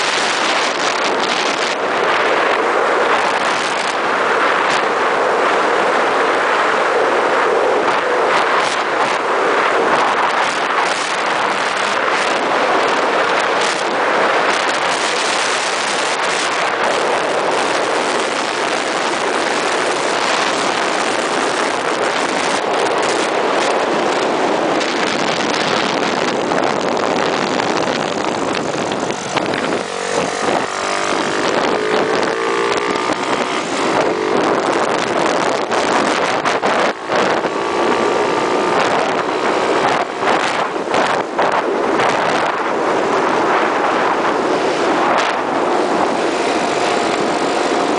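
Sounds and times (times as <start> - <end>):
wind rush on microphone: 0.0 - 47.9
scooter engine running: 15.0 - 42.5.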